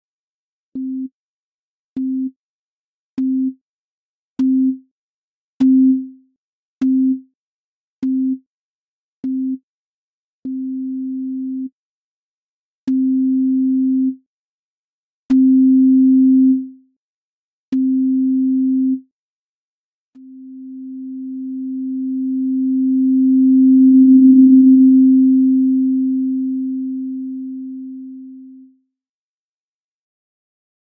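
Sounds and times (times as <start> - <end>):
low synthesized sine beeps: 20.2 - 28.8.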